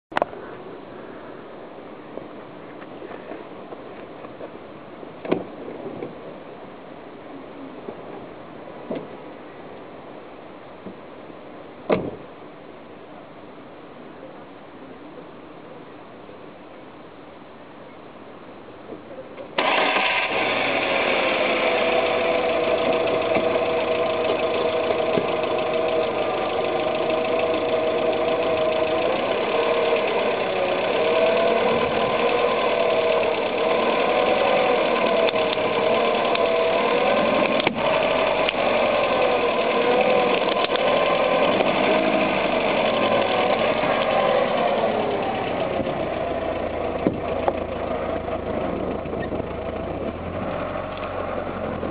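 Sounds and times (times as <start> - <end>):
car engine starting and running: 19.4 - 51.9.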